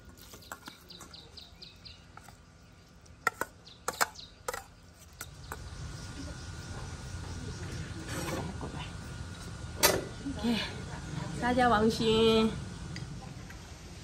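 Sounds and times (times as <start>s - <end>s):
small birds chirping: 0.0s - 8.1s.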